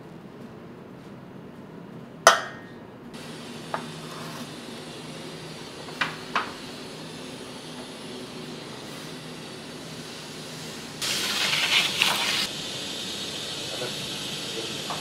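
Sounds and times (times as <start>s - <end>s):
oven hissing: 3.2s - 15.0s.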